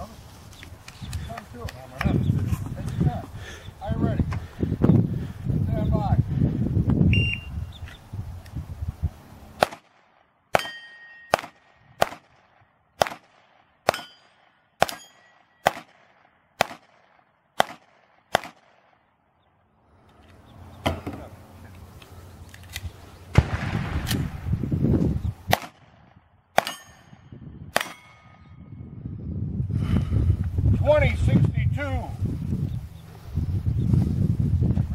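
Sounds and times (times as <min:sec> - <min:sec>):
pistol shots: 0:09.6 - 0:19.0, 0:23.3 - 0:24.4, 0:25.5 - 0:26.0, 0:26.6 - 0:27.1, 0:27.7 - 0:28.4
steel plate ringing: 0:10.6 - 0:11.4, 0:13.9 - 0:15.6, 0:26.6 - 0:27.2.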